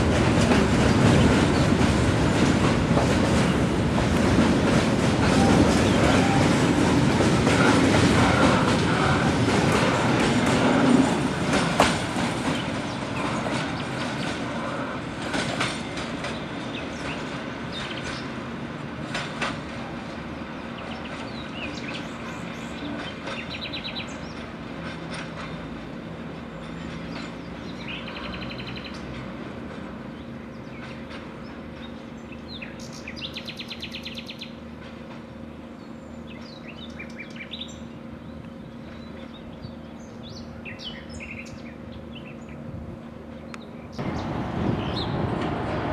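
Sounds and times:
train wheels clicking over rail joints: 0:00.0 - 0:20.0, 0:20.9 - 0:35.4
birds chirping: 0:05.4 - 0:06.6, 0:12.4 - 0:14.7, 0:15.8 - 0:18.6, 0:20.2 - 0:24.8, 0:30.0 - 0:45.8.

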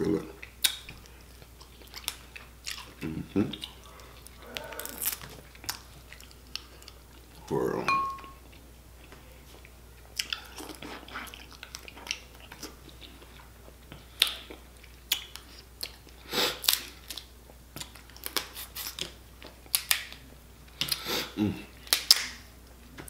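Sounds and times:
wet chewing: 0:00.4 - 0:07.4.

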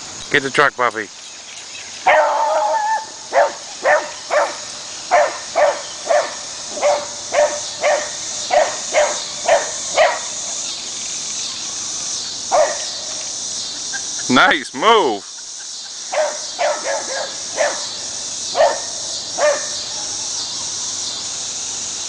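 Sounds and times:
dog baying: 0:02.1 - 0:10.3, 0:16.1 - 0:17.9
dog barking: 0:02.1 - 0:10.4, 0:12.5 - 0:13.0, 0:16.1 - 0:19.9.

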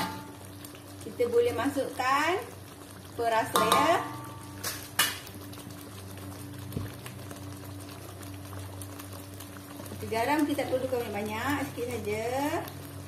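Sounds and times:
low steady hum: 0:00.0 - 0:13.0
sauce bubbling in a wok: 0:00.0 - 0:13.0.

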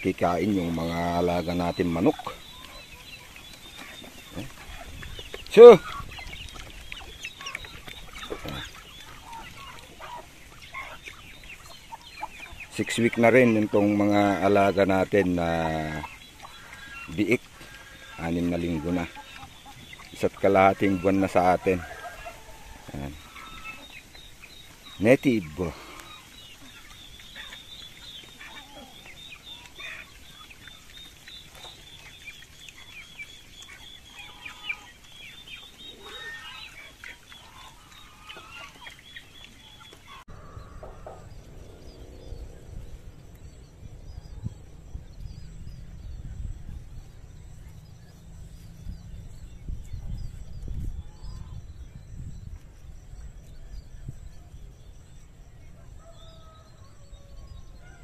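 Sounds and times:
chickens clucking: 0:00.0 - 0:51.6
birds chirping: 0:00.0 - 0:58.0
wind rumble on microphone: 0:04.3 - 0:08.7, 0:40.3 - 0:58.0.

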